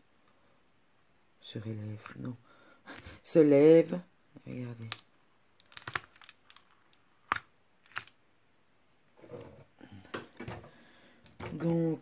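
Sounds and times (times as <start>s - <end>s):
plastic film crinkling: 4.5s - 8.2s
sharp plastic clicks: 7.3s - 8.2s.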